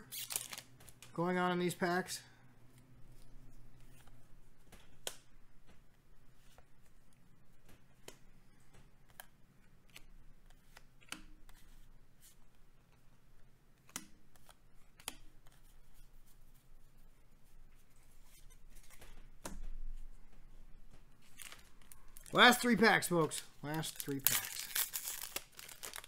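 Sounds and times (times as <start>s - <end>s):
cards rustling: 0.0s - 1.8s, 17.8s - 26.0s
cards snapping and clicking: 23.2s - 26.0s.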